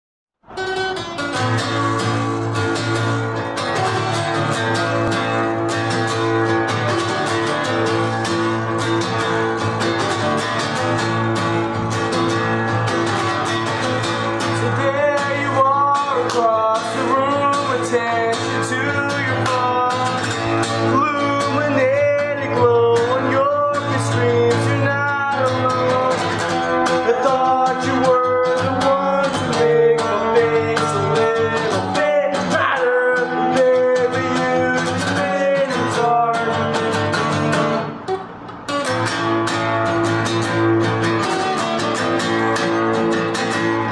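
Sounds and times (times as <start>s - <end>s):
acoustic guitars strumming: 0.4s - 43.9s
person singing: 14.4s - 36.9s.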